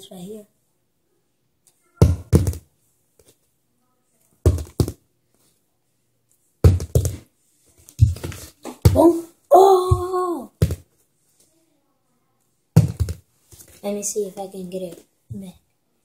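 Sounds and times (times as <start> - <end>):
dull thumps: 9.8 - 10.8, 12.8 - 13.2.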